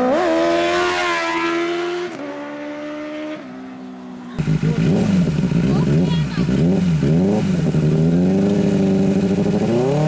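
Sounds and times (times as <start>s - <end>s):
lower engine sound: 3.6s - 10.0s.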